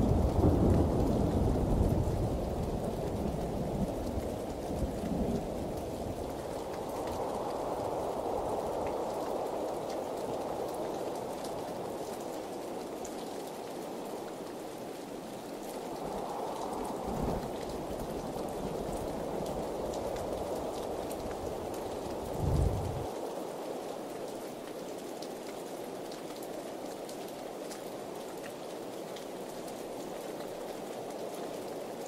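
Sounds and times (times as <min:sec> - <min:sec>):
heavy rain on pavement: 0:00.0 - 0:32.0
low rumble: 0:22.3 - 0:23.1.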